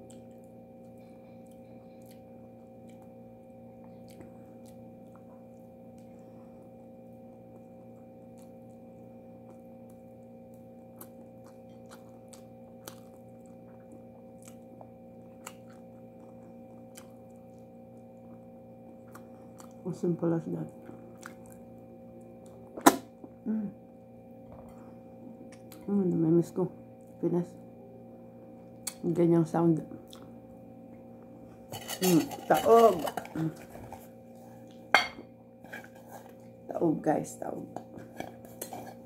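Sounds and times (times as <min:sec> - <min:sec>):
quiet chewing: 0:00.0 - 0:03.2, 0:03.8 - 0:06.4, 0:07.5 - 0:19.8, 0:20.7 - 0:23.4, 0:24.6 - 0:25.9, 0:30.0 - 0:31.0
steady hum: 0:00.0 - 0:39.0.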